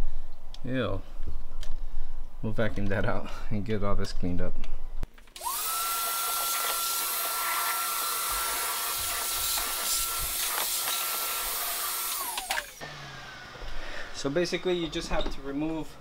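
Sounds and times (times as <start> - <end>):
vacuum cleaner running: 5.4 - 14.9.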